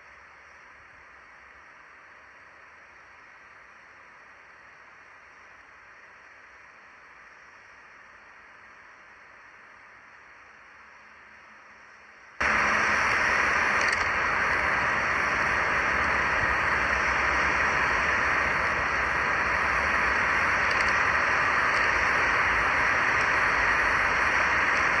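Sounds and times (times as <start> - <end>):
loud steady rushing noise: 0.2 - 25.0.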